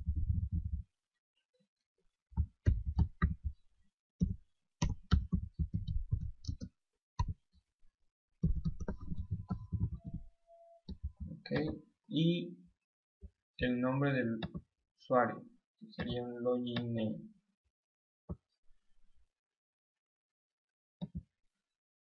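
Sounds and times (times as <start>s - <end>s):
keyboard typing: 8.4s - 10.3s.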